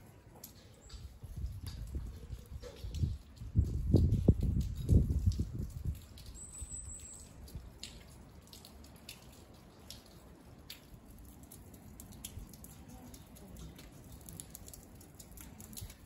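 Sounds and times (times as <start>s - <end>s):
rain drops ticking: 0.0s - 16.0s.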